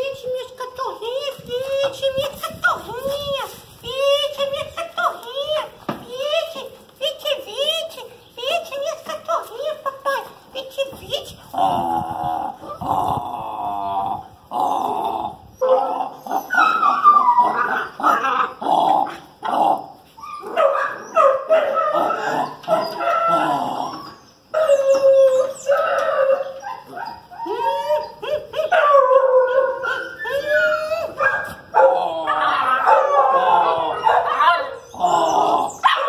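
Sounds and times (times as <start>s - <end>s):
puppies whining and yelping: 15.6s - 18.0s, 20.2s - 31.5s.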